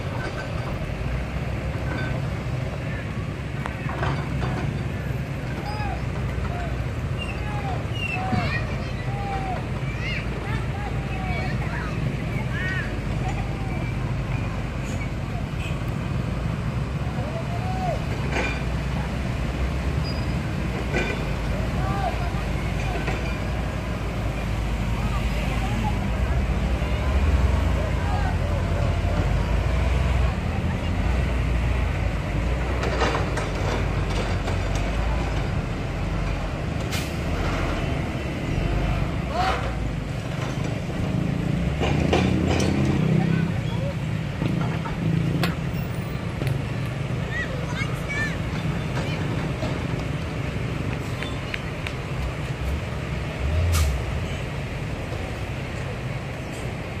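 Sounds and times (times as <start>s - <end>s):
diesel truck engine rumbling: 0.0s - 57.0s
short sharp hiss: 53.7s - 54.0s.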